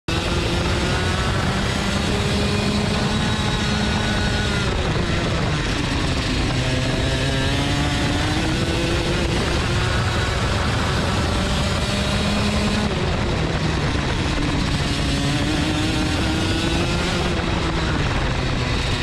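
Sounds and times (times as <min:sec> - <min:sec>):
go-kart engine: 0:00.1 - 0:19.0.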